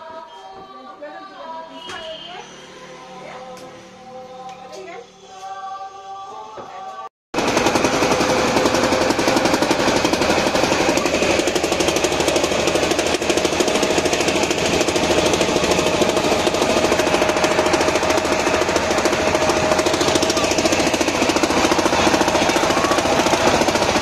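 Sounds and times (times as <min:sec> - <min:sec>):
boat engine running: 0:07.4 - 0:24.0.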